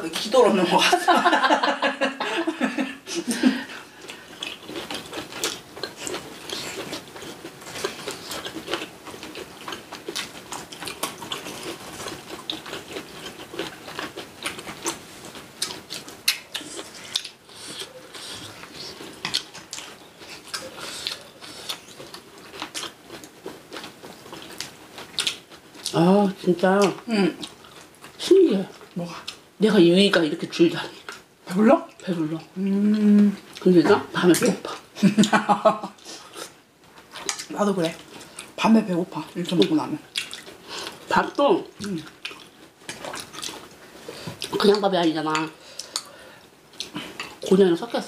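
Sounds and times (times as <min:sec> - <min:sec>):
people chewing with wet smacks: 0:03.1 - 0:47.7.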